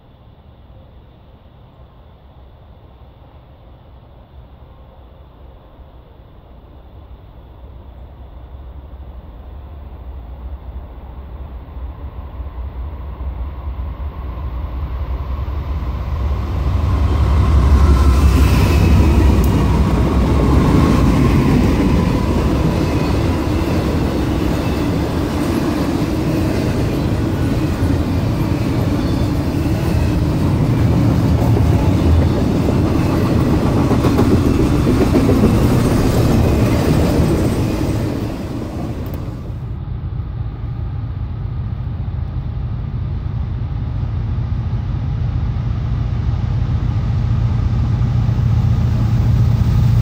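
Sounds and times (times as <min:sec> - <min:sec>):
train wheels on rails: 0:11.8 - 0:39.8, 0:42.0 - 0:50.0
diesel locomotive rumble: 0:14.6 - 0:50.0.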